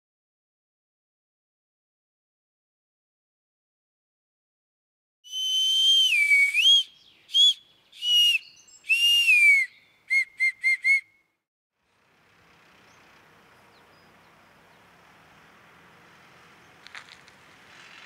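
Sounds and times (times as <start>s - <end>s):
faint outdoor hiss: 5.3s - 10.2s, 11.8s - 18.0s.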